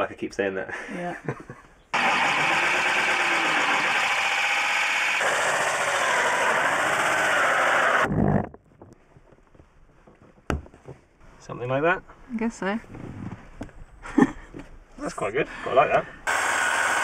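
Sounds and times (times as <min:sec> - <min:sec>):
power drill cutting wood: 0:01.9 - 0:08.1, 0:16.2 - 0:17.0.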